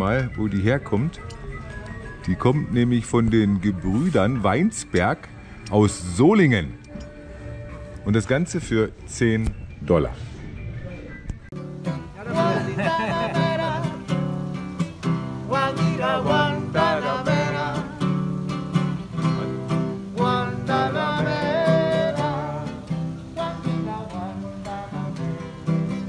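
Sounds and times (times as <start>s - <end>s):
acoustic guitar strumming: 11.5s - 26.0s
person singing: 11.8s - 14.4s, 15.0s - 26.0s.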